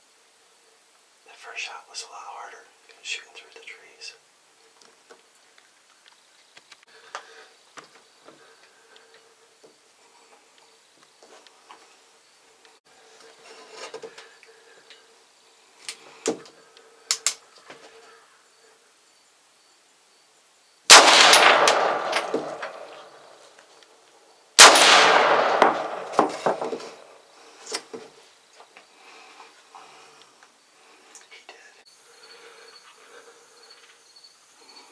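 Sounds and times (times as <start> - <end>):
rifle shots with echo: 20.9 - 23.4, 24.6 - 27.1.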